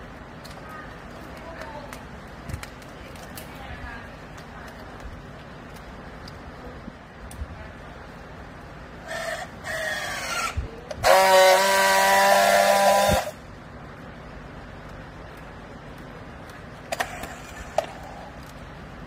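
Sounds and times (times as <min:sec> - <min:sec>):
strapping tool buzzing: 0:09.1 - 0:13.4
strapping tool motor whine: 0:09.1 - 0:13.4.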